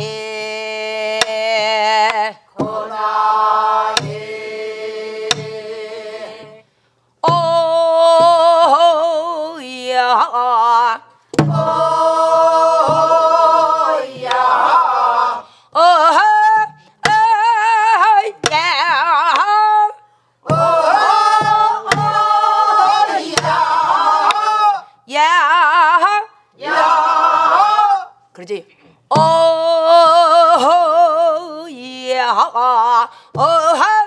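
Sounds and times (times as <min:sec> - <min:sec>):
woman singing with vibrato: 0:00.0 - 0:28.2, 0:29.1 - 0:34.0
low drum thuds: 0:11.4 - 0:14.7.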